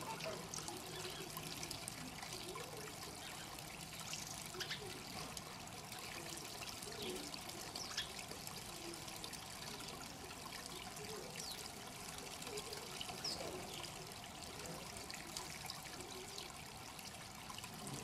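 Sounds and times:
water trickling and splashing: 0:00.0 - 0:18.0.

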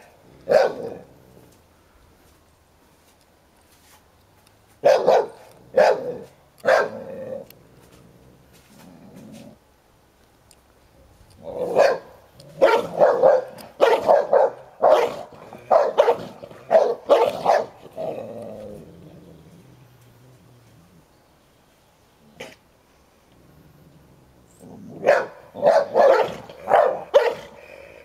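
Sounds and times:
dogs barking: 0:00.4 - 0:01.0, 0:04.8 - 0:07.1, 0:11.6 - 0:17.8, 0:25.0 - 0:27.6.

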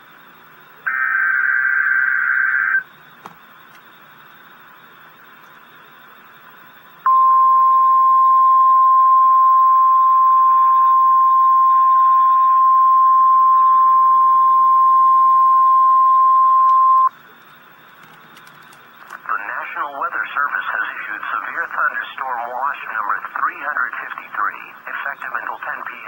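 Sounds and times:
steady alarm tone: 0:00.3 - 0:03.1, 0:04.0 - 0:17.1
faint radio hiss: 0:10.1 - 0:26.0.

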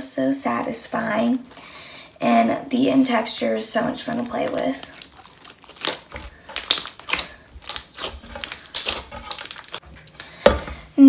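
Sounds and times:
slime squished by hand: 0:04.1 - 0:09.8.

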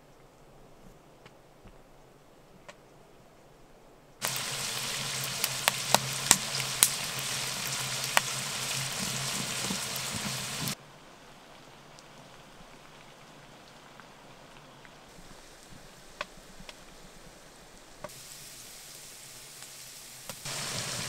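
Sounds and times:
wood fire crackling: 0:04.2 - 0:21.0.

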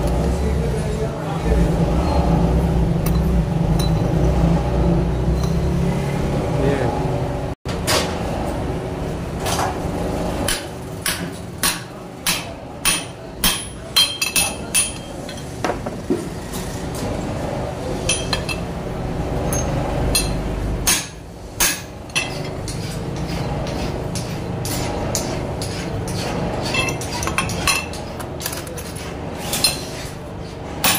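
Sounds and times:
hammer clanking on steel punch: 0:10.5 - 0:15.1, 0:19.5 - 0:22.8.

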